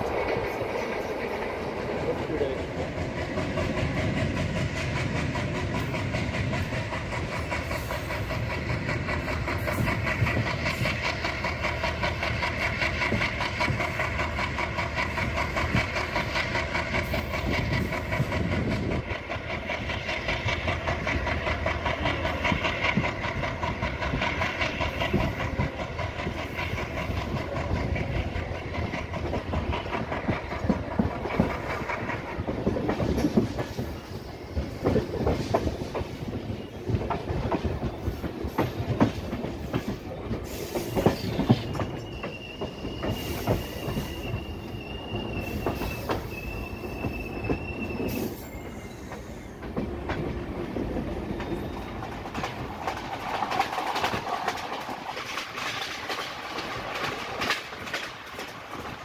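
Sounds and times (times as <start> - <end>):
train wheels clattering on track: 0.0 - 59.0.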